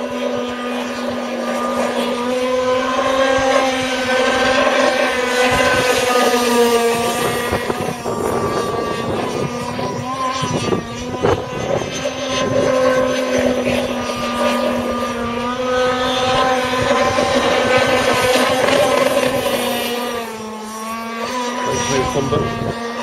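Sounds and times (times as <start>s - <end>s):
speedboat engine buzzing: 0.0s - 23.0s.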